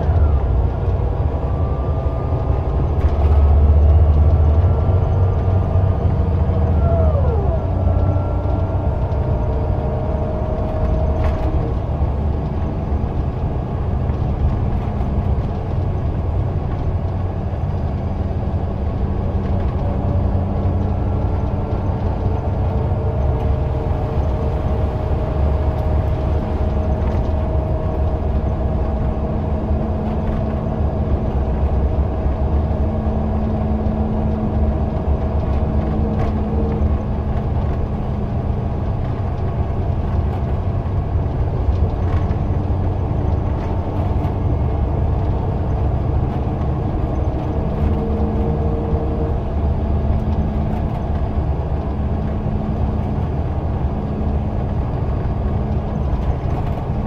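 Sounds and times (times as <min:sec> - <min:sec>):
bus diesel engine drone: 0:00.0 - 0:57.0.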